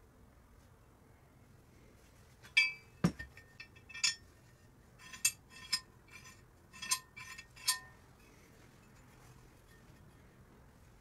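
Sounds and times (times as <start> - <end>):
metal parts clinking: 2.6 - 4.3, 5.0 - 8.0.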